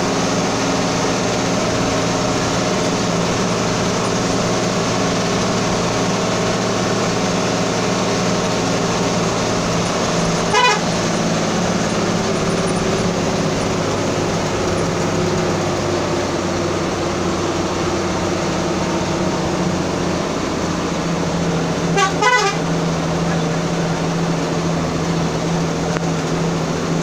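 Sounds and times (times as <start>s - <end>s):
road and wind noise: 0.0s - 27.0s
vehicle engine driving: 0.0s - 27.0s
car horn toot: 10.4s - 11.0s, 21.9s - 22.8s.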